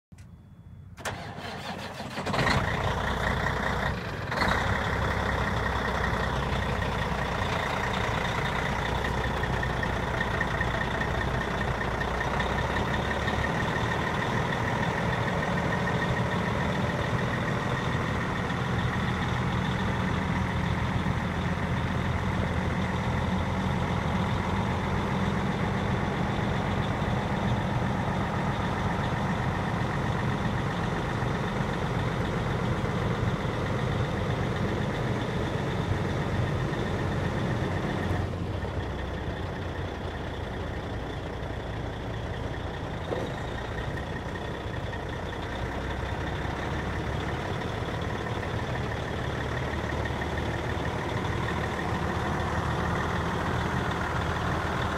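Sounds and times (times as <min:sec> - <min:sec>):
diesel truck engine starting and idling: 0:00.1 - 0:54.9.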